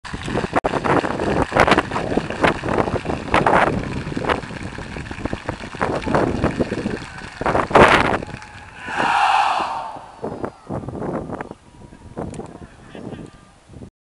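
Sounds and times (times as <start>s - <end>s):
wind buffeting microphone: 0.1s - 13.9s
crowd chanting: 8.8s - 10.5s.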